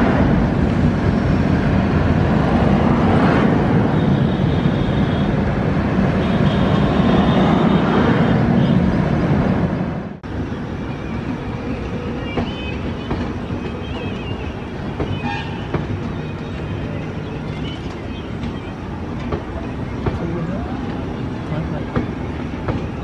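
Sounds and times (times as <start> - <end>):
passing train rumble: 0.0 - 23.0
train wheels rumbling on rails: 0.0 - 23.0.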